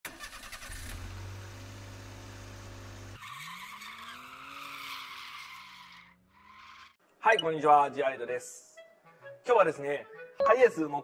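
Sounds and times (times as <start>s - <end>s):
tyre screech: 3.2s - 7.0s.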